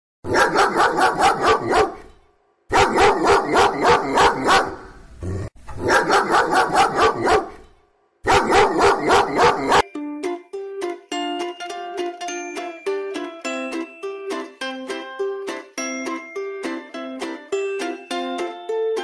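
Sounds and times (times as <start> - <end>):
dog barking: 0.3 - 5.0, 5.8 - 9.8.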